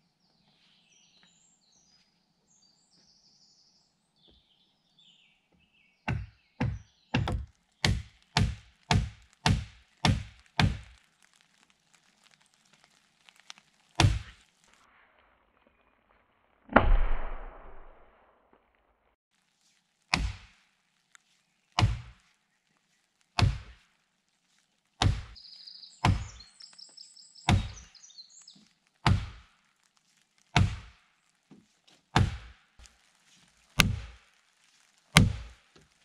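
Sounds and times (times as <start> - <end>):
faint birds chirping: 0.0 - 16.6, 19.5 - 31.9
axe knocking wooden peg: 6.1 - 10.8.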